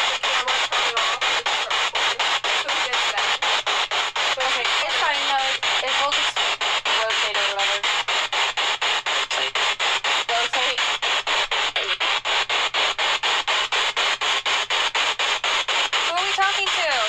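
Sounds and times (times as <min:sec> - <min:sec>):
voice-like radio fragment: 0:00.0 - 0:03.7, 0:04.3 - 0:07.9, 0:09.3 - 0:09.6, 0:10.3 - 0:12.6, 0:16.1 - 0:17.0
chopped radio static hiss: 0:00.0 - 0:17.0.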